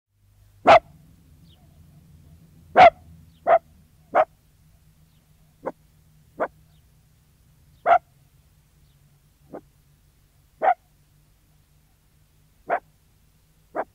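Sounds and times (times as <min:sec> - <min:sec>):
terrier barking: 0:00.6 - 0:01.0, 0:02.7 - 0:04.4, 0:05.6 - 0:05.8, 0:06.4 - 0:06.6, 0:07.8 - 0:08.1, 0:09.5 - 0:09.7, 0:10.6 - 0:10.9, 0:12.6 - 0:12.9.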